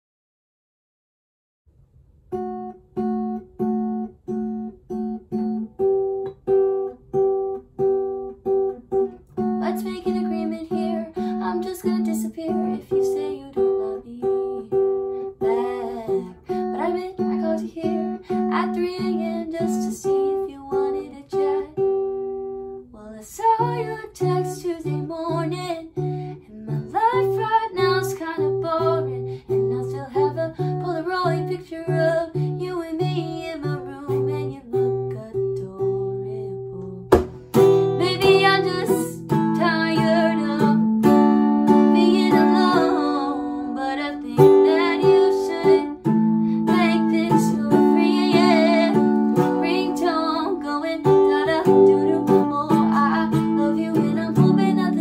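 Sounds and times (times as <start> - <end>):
acoustic guitar fingerpicked: 2.3 - 55.0
young woman singing: 9.4 - 37.2, 37.8 - 55.0.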